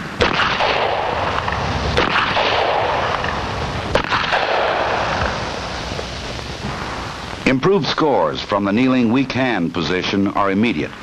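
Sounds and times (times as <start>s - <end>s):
revolver shots echoing: 0.0s - 5.8s.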